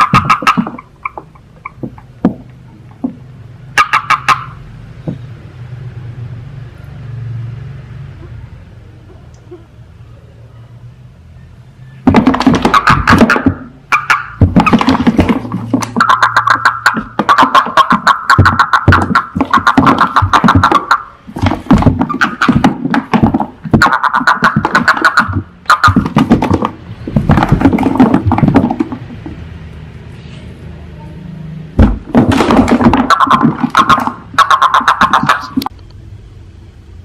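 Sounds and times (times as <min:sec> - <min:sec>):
toads trilling: 0:00.0 - 0:02.2, 0:03.8 - 0:04.7, 0:12.5 - 0:15.1, 0:15.9 - 0:21.2, 0:23.7 - 0:26.2, 0:33.0 - 0:35.7
thump: 0:31.8 - 0:33.7.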